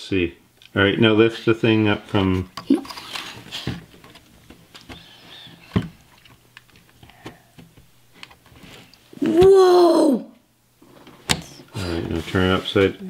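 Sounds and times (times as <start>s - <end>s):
child exclaiming whoa: 9.2s - 10.4s.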